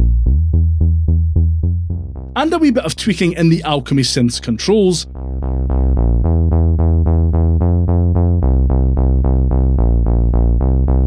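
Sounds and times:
arpeggiated synth bass: 0.0s - 11.0s.

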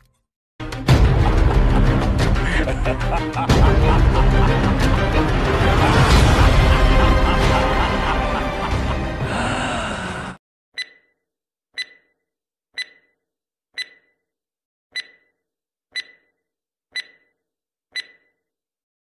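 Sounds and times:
music: 0.6s - 10.4s
clock ticking: 10.8s - 11.1s, 11.8s - 12.2s, 12.8s - 13.2s, 13.8s - 14.2s, 15.0s - 17.4s, 18.0s - 18.4s.

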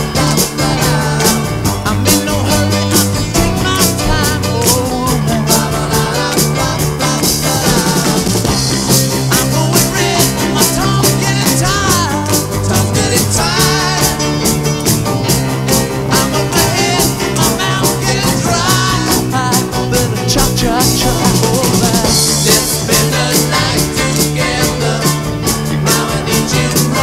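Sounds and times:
man singing lead vocal: 0.0s - 14.4s, 16.0s - 27.0s
rock and roll band playing: 0.0s - 27.0s.

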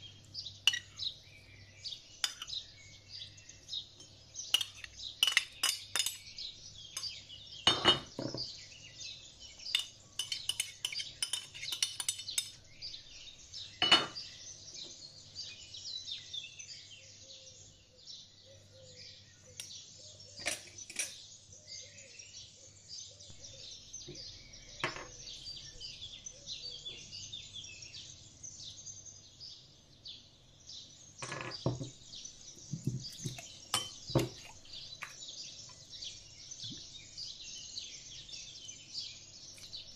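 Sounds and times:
birds chirping: 0.0s - 39.9s
metal spoon clinking on glass bowl: 0.7s - 1.0s, 2.2s - 2.6s, 4.5s - 8.1s, 9.7s - 12.6s, 33.2s - 34.5s.

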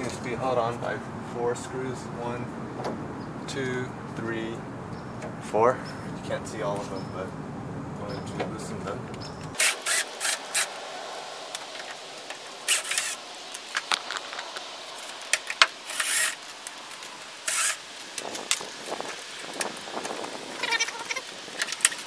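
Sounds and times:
cordless driver bursts: 9.6s - 10.8s, 12.6s - 13.2s, 15.8s - 16.4s, 17.4s - 17.9s.

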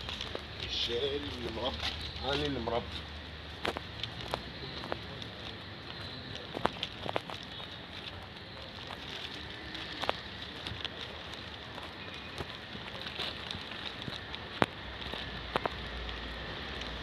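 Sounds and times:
footsteps on gritty asphalt: 0.0s - 17.0s
street background noise: 0.0s - 17.0s.

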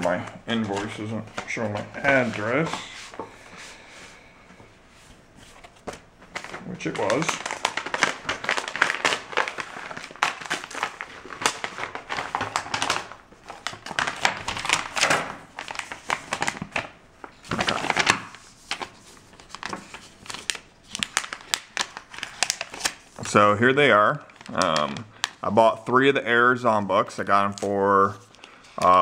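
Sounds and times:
plastic packaging crinkling: 5.5s - 23.6s, 24.2s - 25.6s.

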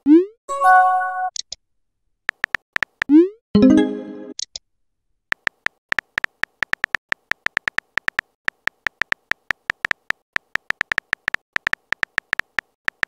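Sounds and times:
phone keyboard typing clicks: 2.3s - 3.1s, 5.3s - 13.0s.

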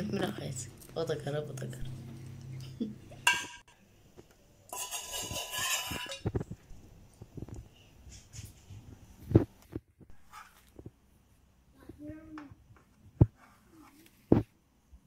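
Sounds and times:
spoon scraping metal tray: 4.7s - 6.4s.

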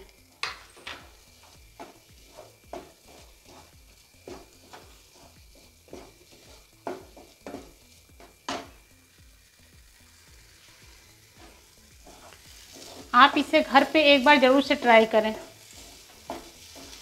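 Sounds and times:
spatula scraping in a pan: 0.5s - 17.0s.

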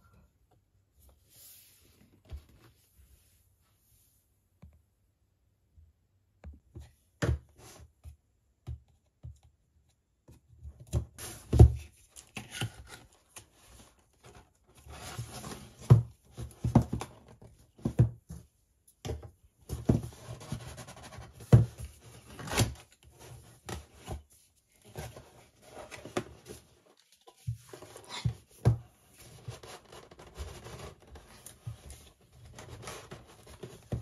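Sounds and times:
cardboard scraping and rubbing: 11.2s - 17.2s, 19.8s - 34.0s.

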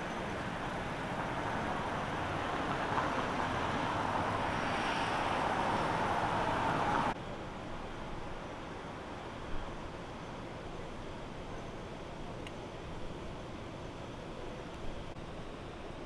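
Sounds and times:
car passing: 0.0s - 7.2s.

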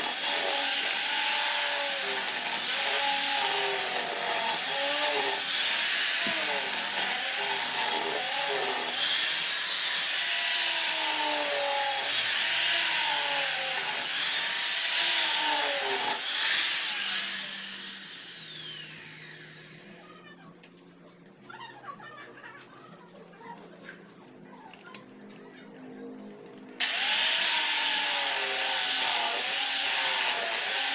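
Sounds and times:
disc sander whining: 26.8s - 30.9s.

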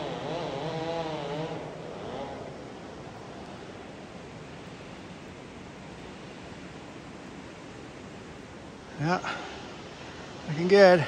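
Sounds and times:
broad rushing hiss: 8.8s - 11.0s.

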